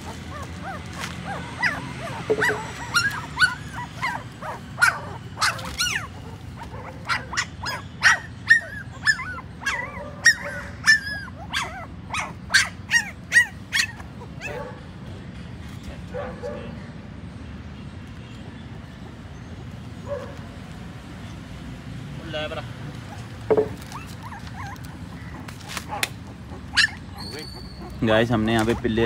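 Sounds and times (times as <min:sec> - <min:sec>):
puppies whimpering and yelping: 0:00.0 - 0:14.8, 0:23.0 - 0:29.0.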